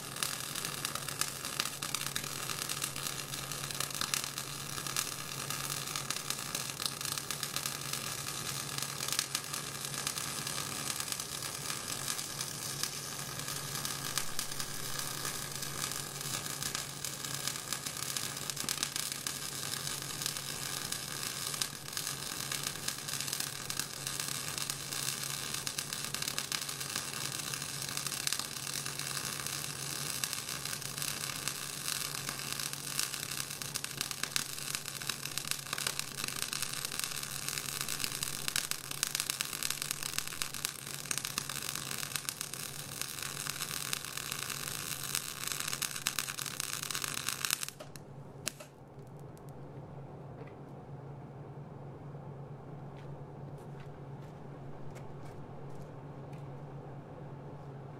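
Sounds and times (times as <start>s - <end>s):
welding arc crackling sizzle: 0.0s - 49.5s
low hum: 47.9s - 57.9s.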